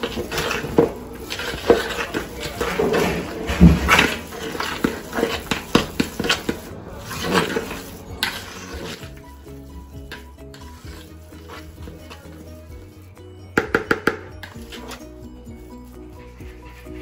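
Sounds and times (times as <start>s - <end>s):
fork scraping plastic bowl: 0.0s - 13.0s, 13.6s - 17.0s
background music: 0.0s - 17.0s.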